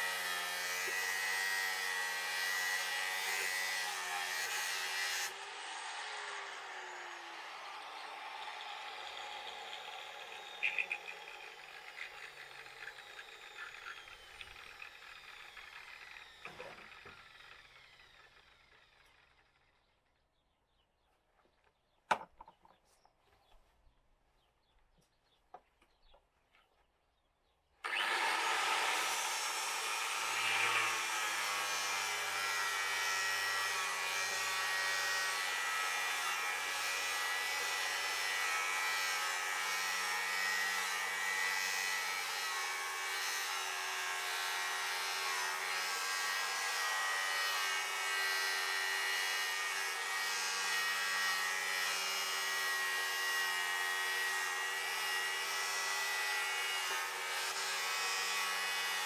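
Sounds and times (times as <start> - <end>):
power saw cutting: 0.0 - 19.6, 27.8 - 59.0.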